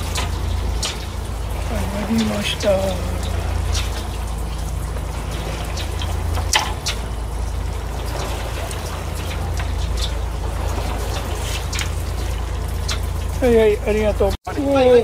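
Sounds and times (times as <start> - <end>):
low rumble: 0.0 - 15.0
water washing against hull: 0.0 - 15.0.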